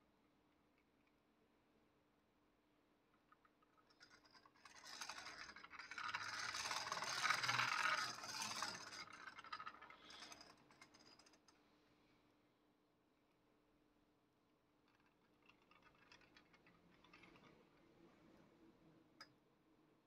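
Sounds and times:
lathe carriage rattling: 0:05.0 - 0:11.1.

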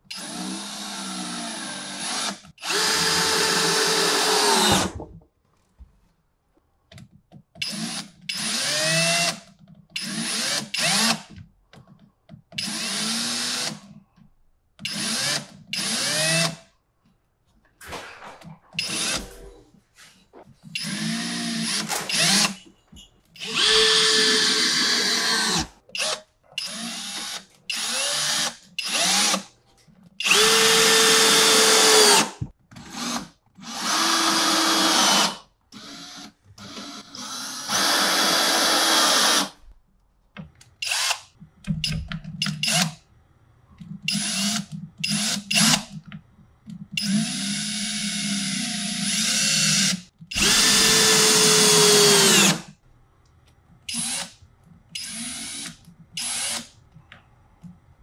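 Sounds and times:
power drill driving screws: 0:00.2 - 0:04.9, 0:20.8 - 0:22.6, 0:23.4 - 0:29.4, 0:30.2 - 0:32.3, 0:32.9 - 0:39.5, 0:47.0 - 0:52.6, 0:53.9 - 0:54.3, 0:55.0 - 0:56.7.

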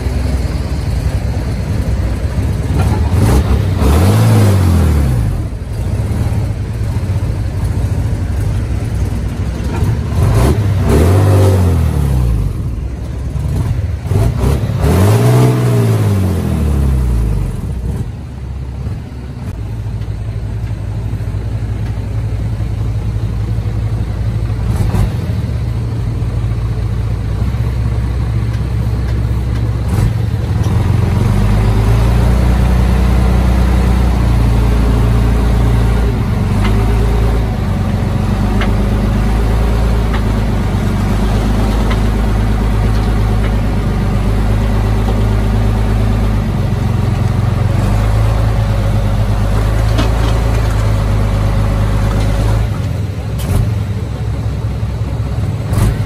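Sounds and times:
heavy diesel engine running: 0:00.0 - 0:56.0.

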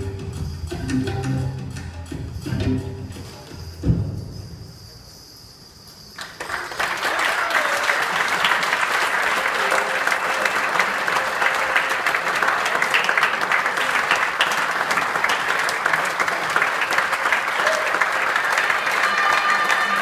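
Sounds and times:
audience applauding: 0:06.2 - 0:20.0.

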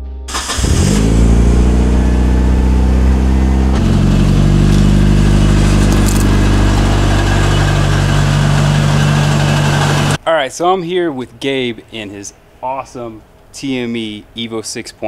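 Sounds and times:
car engine idling: 0:00.3 - 0:10.2.

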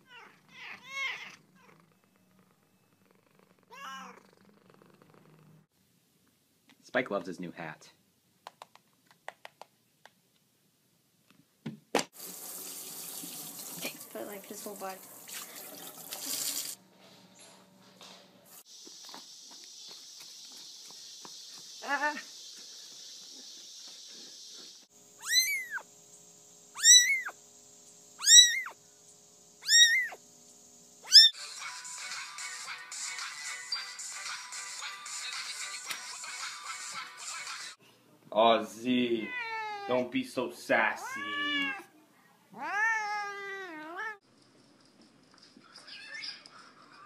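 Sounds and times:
kitten meowing: 0:00.0 - 0:01.7, 0:03.7 - 0:04.2, 0:25.2 - 0:25.8, 0:26.8 - 0:27.4, 0:28.2 - 0:28.8, 0:29.6 - 0:30.2, 0:31.0 - 0:31.3, 0:39.2 - 0:39.9, 0:41.0 - 0:41.9, 0:42.6 - 0:44.2
shower sprayer spraying water: 0:12.2 - 0:16.8
music: 0:31.4 - 0:37.8.

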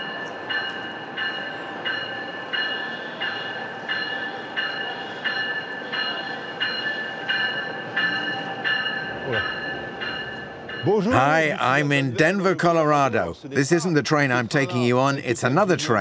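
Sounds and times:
low rumble of train: 0:00.0 - 0:11.9
train warning bell ringing: 0:00.0 - 0:12.6.

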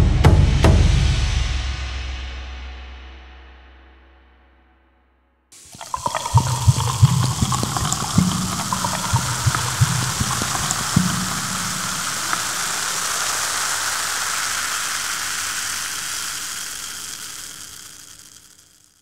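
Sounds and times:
low splashes: 0:05.6 - 0:17.2
carbonated water fizzing: 0:05.6 - 0:18.9.

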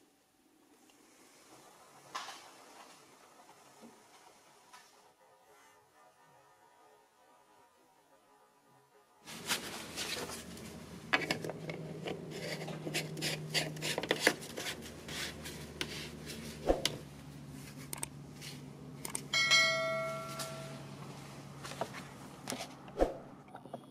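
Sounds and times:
low steady hum: 0:00.0 - 0:23.9
glove rubbing on plastic: 0:09.2 - 0:16.7
bell-like ding: 0:19.3 - 0:21.0.

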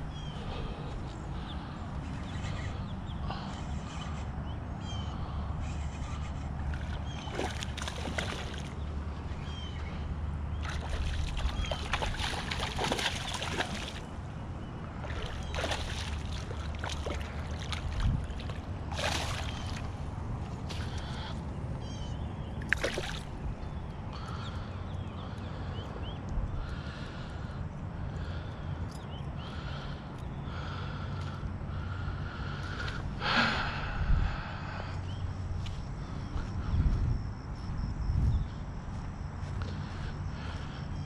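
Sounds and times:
wind rumble on microphone: 0:00.0 - 0:24.1, 0:24.7 - 0:28.2, 0:33.0 - 0:41.0
fish splashing at water surface: 0:06.8 - 0:08.7, 0:10.6 - 0:14.1, 0:15.0 - 0:19.9, 0:22.7 - 0:23.3.

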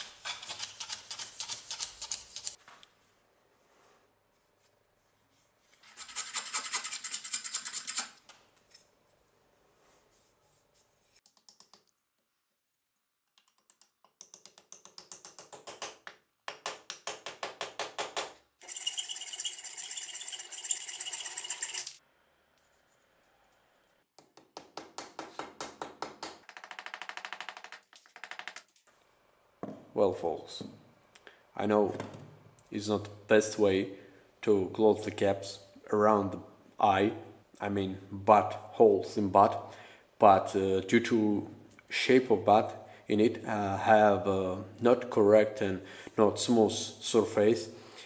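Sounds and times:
hammer striking wooden wedge: 0:14.2 - 0:18.4.

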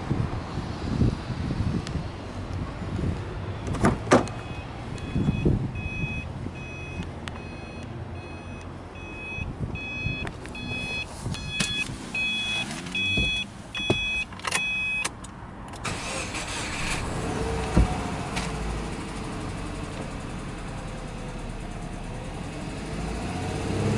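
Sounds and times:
car warning chime beeping: 0:04.2 - 0:15.1.

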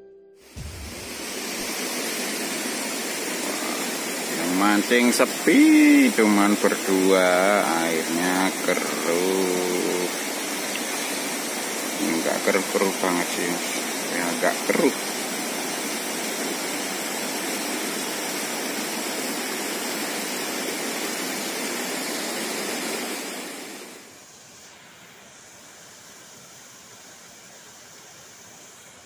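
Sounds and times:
river rushing: 0:00.6 - 0:12.0.

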